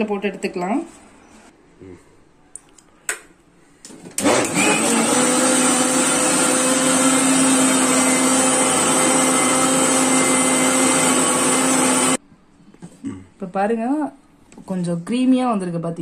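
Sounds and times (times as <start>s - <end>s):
mixer grinder motor running: 4.2s - 12.2s.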